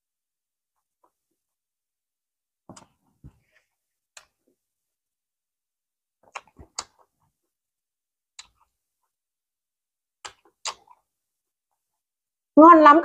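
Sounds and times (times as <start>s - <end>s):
wet lip smacks while chewing: 6.2s - 7.1s, 8.4s - 8.7s, 10.2s - 11.0s.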